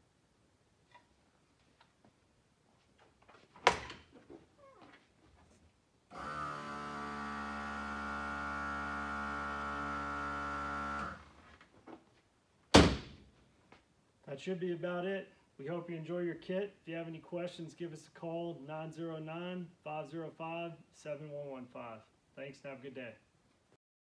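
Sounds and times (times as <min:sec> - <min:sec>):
air compressor humming: 0:06.1 - 0:11.4.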